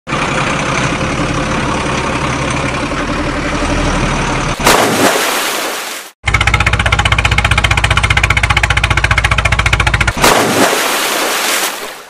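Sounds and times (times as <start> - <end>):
truck engine running: 0.1 - 4.8, 6.2 - 10.5
loud splash in water: 4.6 - 6.2, 10.2 - 12.0.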